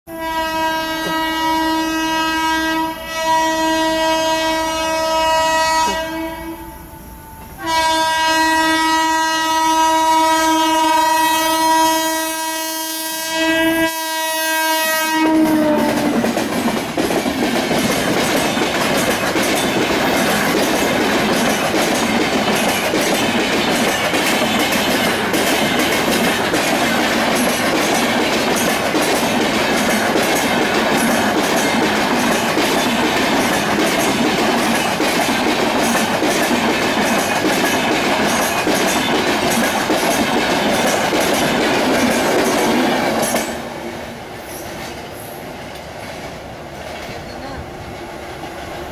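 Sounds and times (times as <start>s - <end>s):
electric locomotive horn blasts: 0.1s - 16.2s
train wheels on rails: 0.1s - 48.9s.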